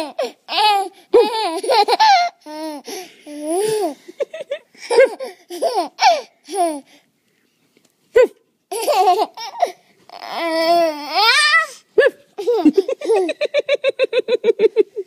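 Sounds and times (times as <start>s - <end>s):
baby giggling: 0.0s - 6.9s, 8.7s - 9.8s, 12.0s - 15.0s.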